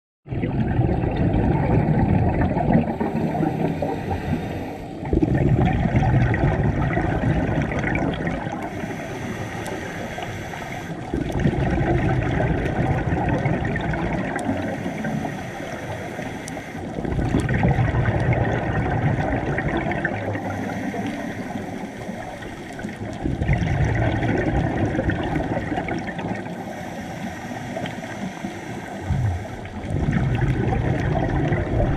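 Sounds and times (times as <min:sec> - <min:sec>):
exhaled air bubbling: 0:00.3 - 0:31.9
diver breathing through regulator: 0:02.8 - 0:05.4, 0:08.6 - 0:11.4, 0:14.4 - 0:17.0, 0:20.2 - 0:23.1, 0:26.3 - 0:30.4.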